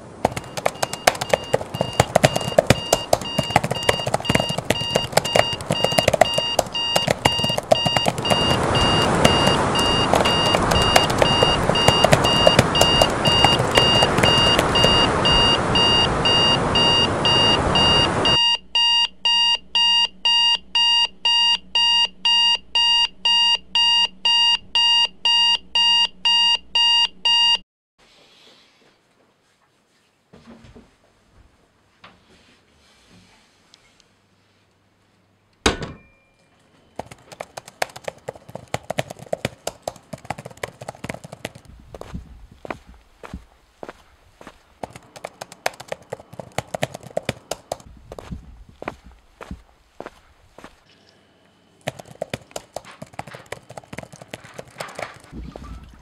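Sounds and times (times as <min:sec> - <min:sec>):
rapid clicking and hiss: 0:00.2 - 0:14.9, 0:51.9 - 0:55.4
alarm clock beeping: 0:00.3 - 0:27.6.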